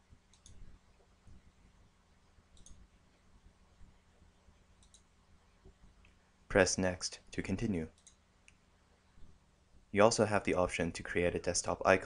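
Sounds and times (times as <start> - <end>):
computer mouse clicks: 0.3 - 0.7, 2.5 - 2.8, 4.8 - 5.1, 7.9 - 8.6.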